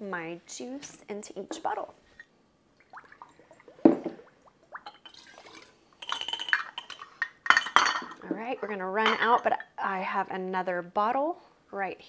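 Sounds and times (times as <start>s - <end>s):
glass clinking: 4.8s - 8.3s, 9.0s - 9.7s
juice pouring hiss: 5.1s - 6.0s.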